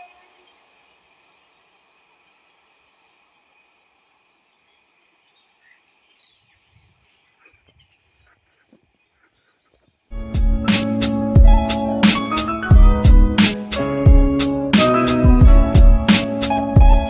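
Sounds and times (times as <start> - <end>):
steady high hum: 0.0 - 7.4
birds chirping: 0.0 - 17.0
loud music with steady beat: 10.2 - 17.0.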